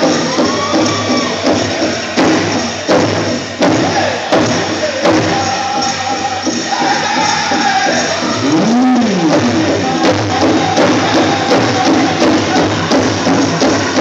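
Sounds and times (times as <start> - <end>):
chorus of voices singing: 3.6 - 14.0
big drum strikes: 8.3 - 14.0.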